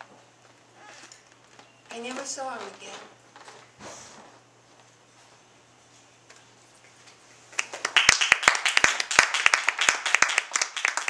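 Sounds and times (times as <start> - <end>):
audience applause: 7.6 - 11.0.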